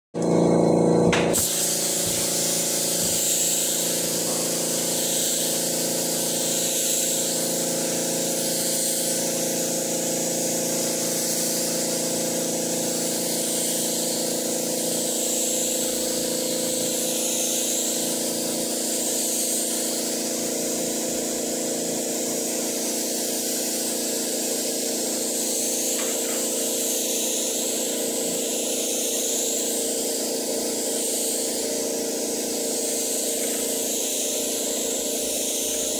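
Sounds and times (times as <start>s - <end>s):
machine hum: 0.2s - 13.8s
spray gun hissing: 1.1s - 35.9s.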